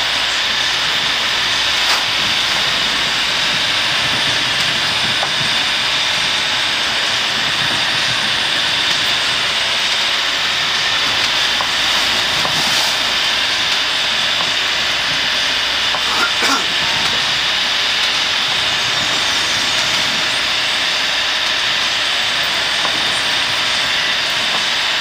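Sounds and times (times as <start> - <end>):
strong gusting wind: 0.0 - 25.0
water streaming past hull: 9.9 - 21.5.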